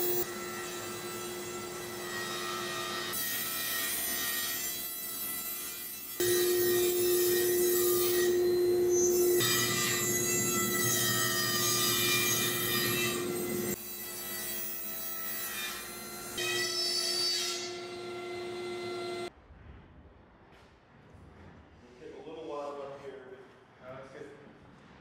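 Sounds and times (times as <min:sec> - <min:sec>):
table saw cutting wood: 0:00.0 - 0:19.3.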